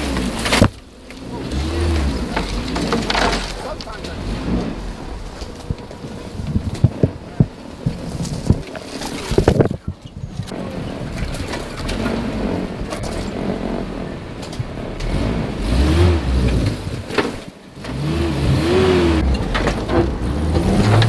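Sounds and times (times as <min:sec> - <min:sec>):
truck engine revving: 0:00.0 - 0:08.6, 0:10.2 - 0:21.0
brush scraping truck body: 0:00.0 - 0:21.0.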